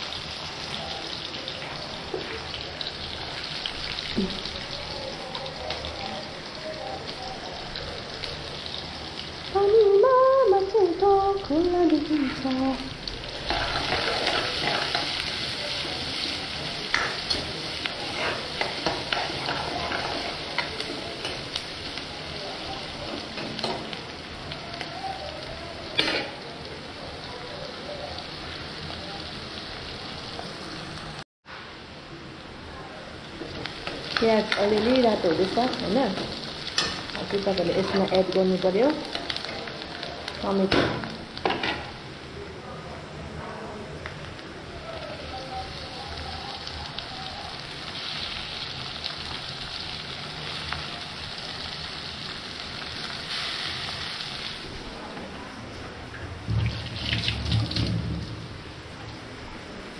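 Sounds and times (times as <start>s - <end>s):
onions sizzling in oil: 0.0s - 31.2s, 32.4s - 59.9s.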